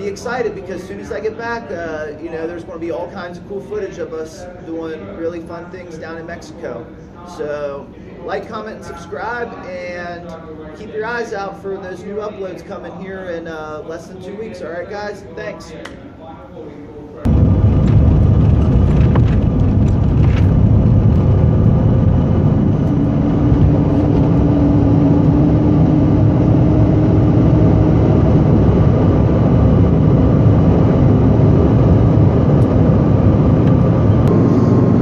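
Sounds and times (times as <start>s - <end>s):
jet engines at takeoff power: 17.3s - 35.0s
rush of air: 30.3s - 35.0s.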